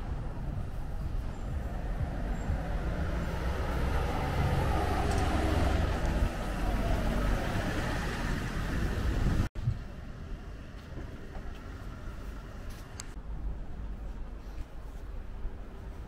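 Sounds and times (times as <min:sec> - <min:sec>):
street traffic rumble: 0:00.0 - 0:16.0
motor vehicle passing by: 0:00.9 - 0:09.5.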